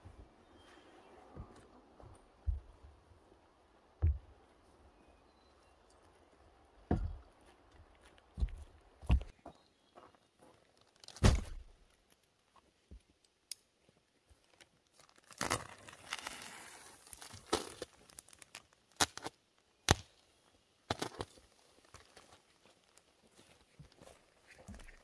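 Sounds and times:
heavy thump: 6.9 - 7.2
crinkling plastic: 10.7 - 12.3, 14.4 - 19.3.

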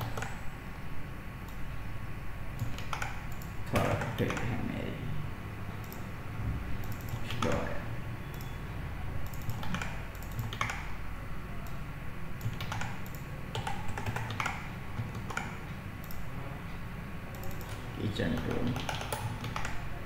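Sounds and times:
keyboard typing: 0.0 - 0.4, 2.6 - 4.6, 5.7 - 6.1, 6.8 - 8.6, 9.2 - 11.0, 12.4 - 16.3, 17.3 - 19.9.

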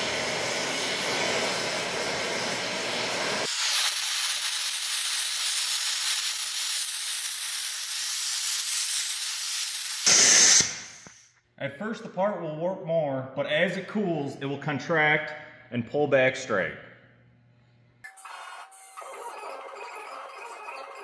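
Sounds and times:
torch low rumble: 0.0 - 3.5
gas torch hissing: 0.0 - 11.3.

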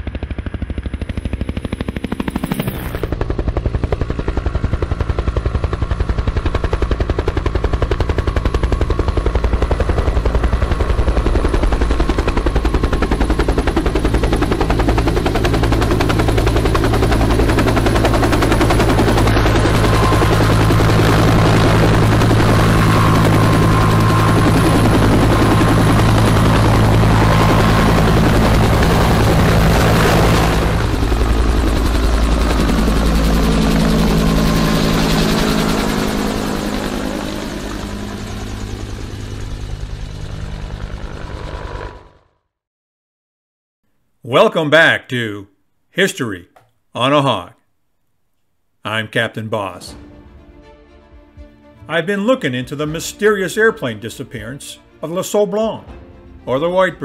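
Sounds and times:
helicopter rotor thumping: 0.0 - 42.1
turbine whine: 0.0 - 42.2.

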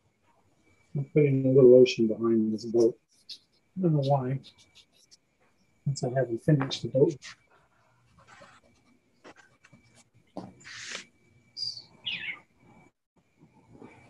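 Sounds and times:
faint steady high tone: 0.6 - 7.7
pencil scratching on paper: 3.0 - 5.2, 7.1 - 11.1.

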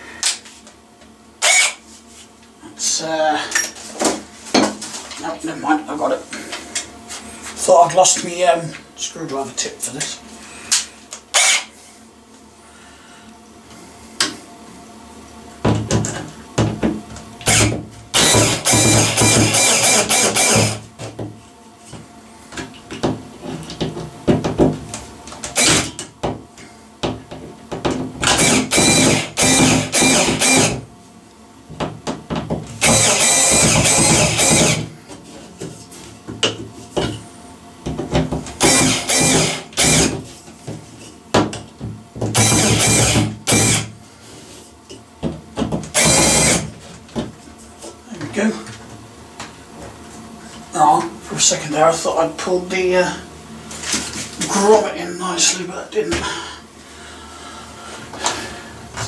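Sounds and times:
cordless drill running: 1.4 - 1.8, 11.3 - 11.7, 17.4 - 20.9, 25.4 - 26.0, 28.2 - 30.8, 32.8 - 34.9, 38.6 - 40.2, 42.4 - 43.9, 45.9 - 46.7.

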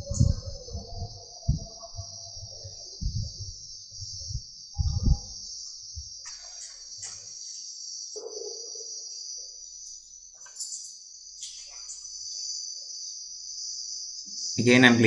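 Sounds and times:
dull low thumps: 0.0 - 6.2
high-pitched chirring hiss: 0.0 - 15.0.

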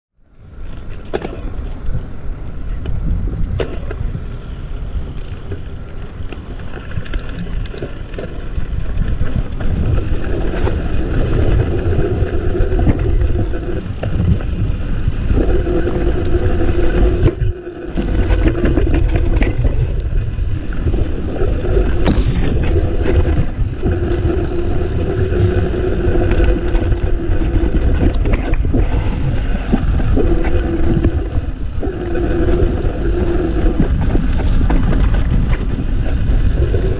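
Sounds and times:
wind buffeting microphone: 0.4 - 36.9
bike rattling and clicking: 5.0 - 14.9
steady hum: 22.1 - 24.0.

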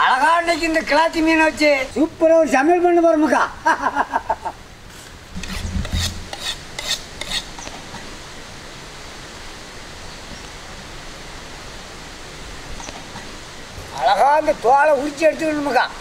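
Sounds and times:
steady even hiss: 0.1 - 16.0
short rasping scrapes: 5.4 - 7.5.

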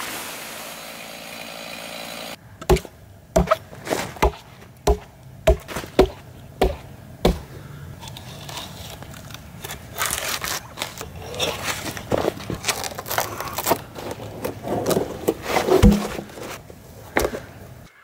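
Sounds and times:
axe knocking on log: 2.6 - 3.6, 4.2 - 7.5, 15.8 - 16.3
crackling scraping noise: 8.0 - 17.2.

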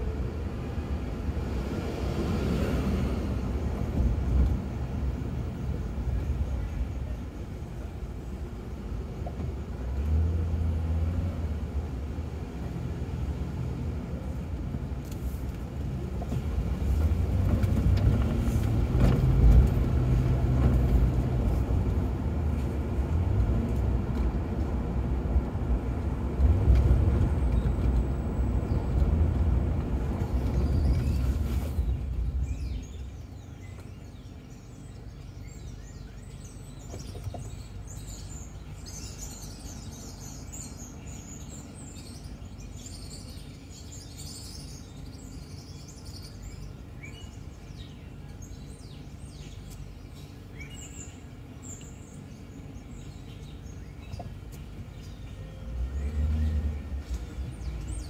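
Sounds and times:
loud traffic rumble: 0.0 - 58.0
street hum: 0.0 - 58.0
small birds chirping: 29.9 - 58.0.

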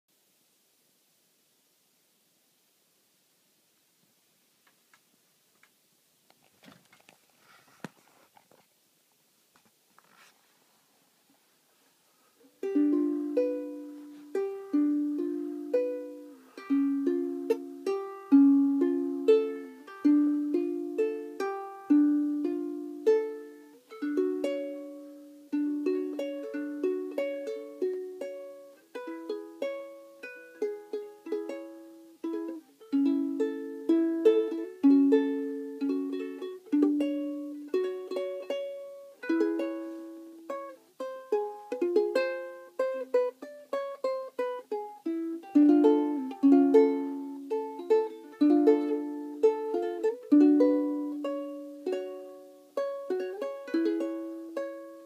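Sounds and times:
ukulele playing: 12.4 - 55.0.

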